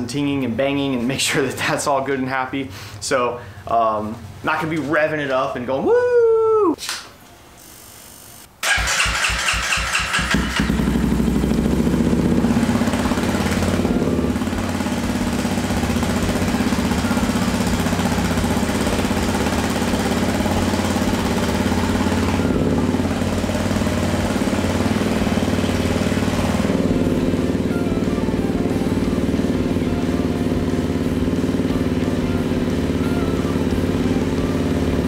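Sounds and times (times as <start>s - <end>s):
engine cranking on starter: 8.6s - 11.3s
motorcycle engine idling: 8.7s - 35.0s.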